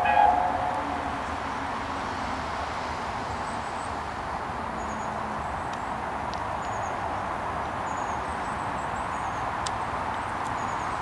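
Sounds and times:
steam train running: 0.0s - 2.4s.

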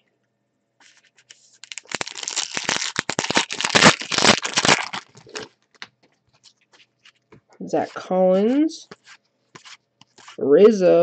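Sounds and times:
plastic foil wrapper crinkling and tearing: 1.3s - 5.9s.

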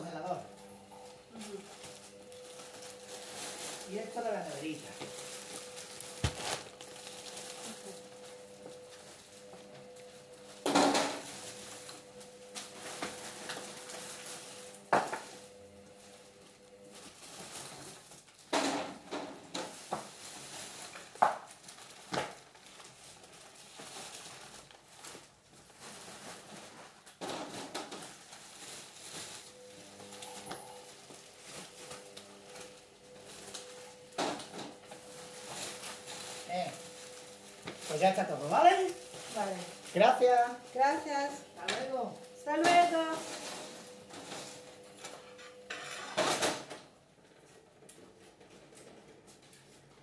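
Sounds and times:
steady hum: 0.0s - 17.0s
groceries knocking and clattering: 1.0s - 15.4s, 16.8s - 50.0s.

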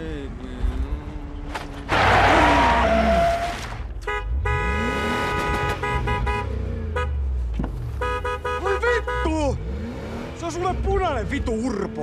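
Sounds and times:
car horn honking: 2.6s - 9.7s.

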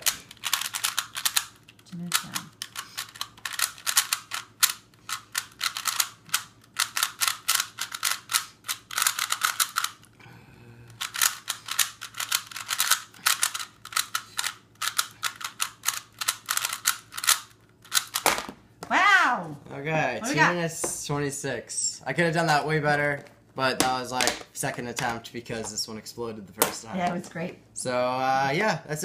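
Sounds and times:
puzzle cube layers clacking: 0.0s - 10.0s, 11.0s - 18.5s.

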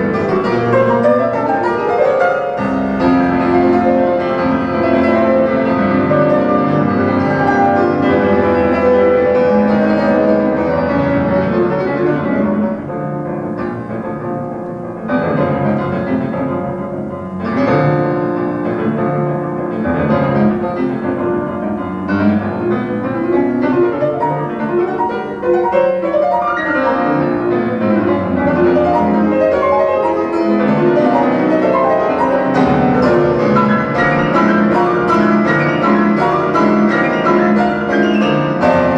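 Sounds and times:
classical piano music over loudspeakers: 0.0s - 38.9s.

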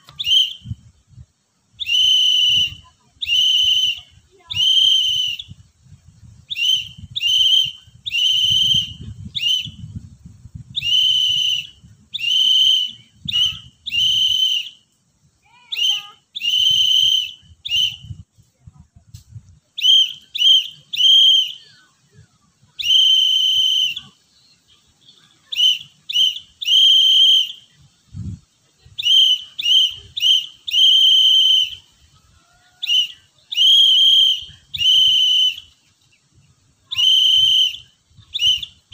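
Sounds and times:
whistle blasts: 0.0s - 1.0s, 1.8s - 5.7s, 6.5s - 10.0s, 10.7s - 18.3s, 19.8s - 21.9s, 22.8s - 24.2s, 25.2s - 27.8s, 28.9s - 32.2s, 32.8s - 35.8s, 36.9s - 38.9s.

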